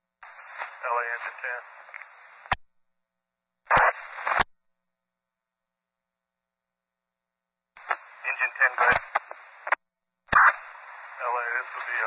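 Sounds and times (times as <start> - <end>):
radio static: 0.2 - 2.6, 3.7 - 4.5, 7.8 - 12.0
sharp radio click: 0.2 - 2.6, 3.7 - 4.5, 7.8 - 12.0.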